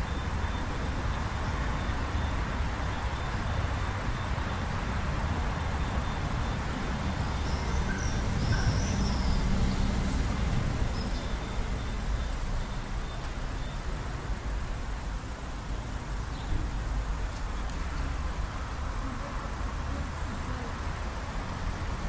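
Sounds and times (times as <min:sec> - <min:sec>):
bird chirps: 0:05.8 - 0:09.8.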